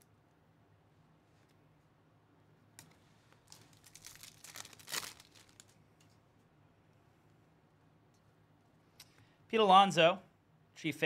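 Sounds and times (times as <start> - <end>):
wrapper crinkling and tearing: 3.4 - 5.8.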